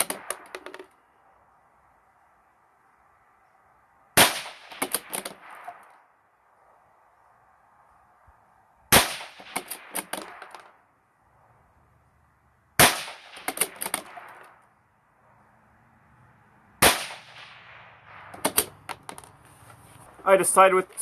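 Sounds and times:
rifle shots: 4.2 - 5.8, 8.9 - 10.5, 12.8 - 14.5, 16.8 - 18.8.

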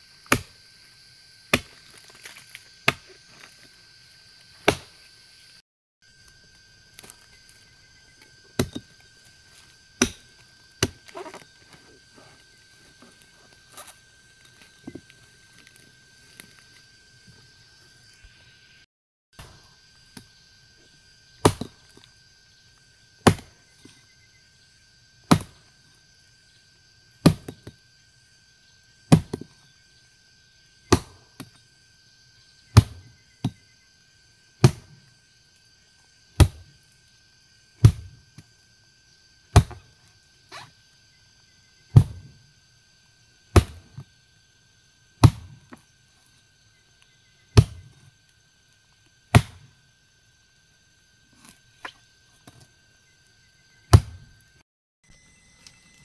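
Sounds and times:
hand tool chopping: 0.3 - 0.6, 1.5 - 3.5, 4.6 - 4.9, 10.0 - 11.5, 23.2 - 23.5, 34.6 - 34.9, 36.4 - 36.7, 39.5 - 39.9, 43.6 - 44.0, 45.2 - 45.8, 49.3 - 49.7.

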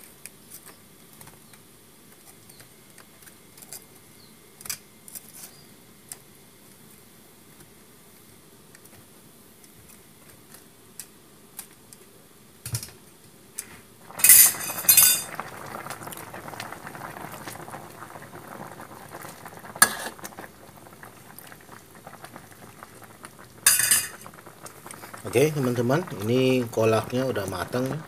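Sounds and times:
liquid bubbling in a wok: 13.9 - 28.0.

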